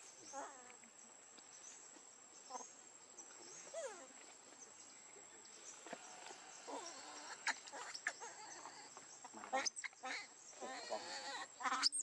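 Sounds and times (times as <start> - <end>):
monkey gliding calls: 6.6 - 9.0.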